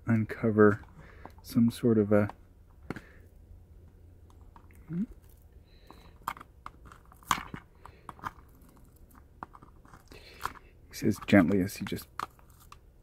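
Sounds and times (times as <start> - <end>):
small clicks and scratches: 4.2 - 12.9.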